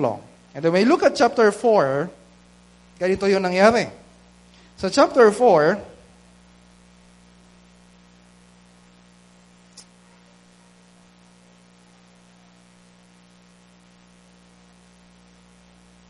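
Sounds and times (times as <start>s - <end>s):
electrical mains hum: 0.0s - 16.0s
faint click: 9.7s - 9.9s.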